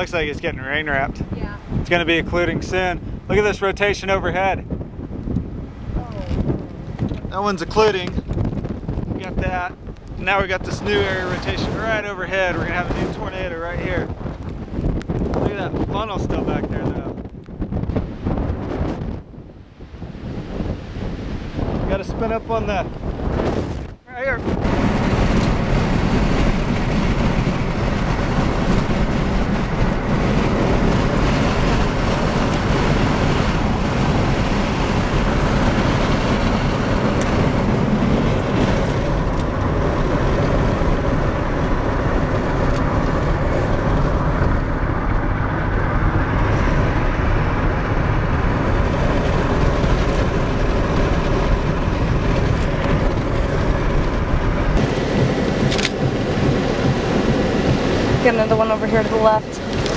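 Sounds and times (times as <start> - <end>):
road noise: 0.0 - 59.9
wind noise inside car: 0.0 - 59.9.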